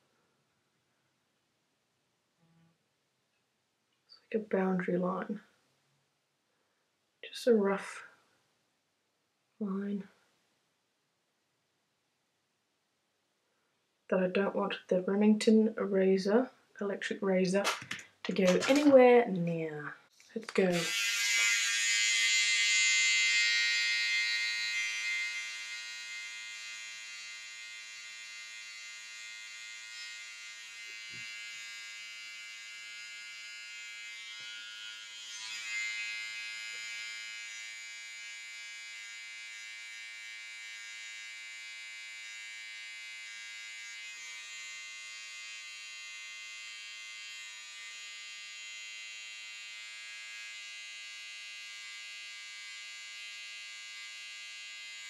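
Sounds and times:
electric razor buzzing: 17.6s - 18.9s, 20.5s - 55.0s.

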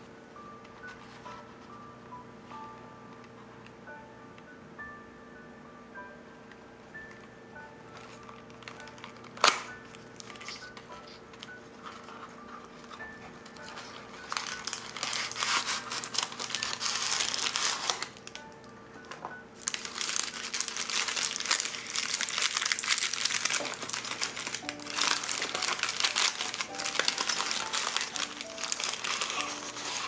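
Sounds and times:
soft background music: 0.0s - 30.0s
wrapper crinkling: 7.9s - 30.0s.

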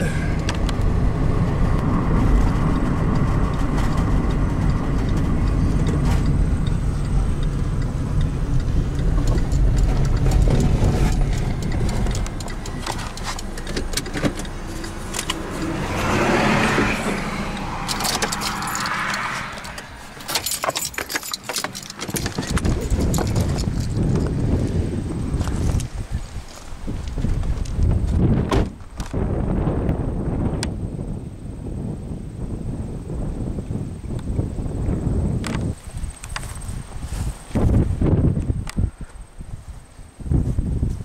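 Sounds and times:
car engine and tyre rumble: 0.0s - 41.0s
clicks and rattles of handling: 8.6s - 15.7s, 17.8s - 24.4s.

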